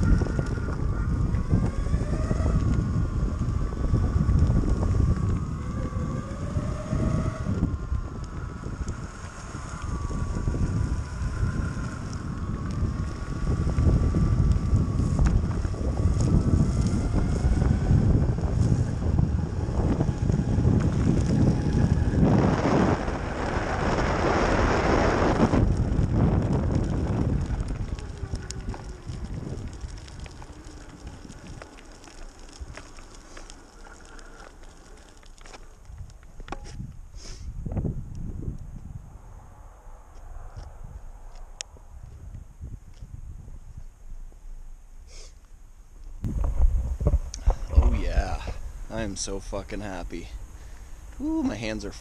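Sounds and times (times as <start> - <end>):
electric motor whine: 0.0 - 35.8
tyres rolling on asphalt: 0.0 - 37.1, 40.1 - 52.0
wind rumble on microphone: 0.0 - 52.0
crackling clicks from grit: 25.3 - 37.0.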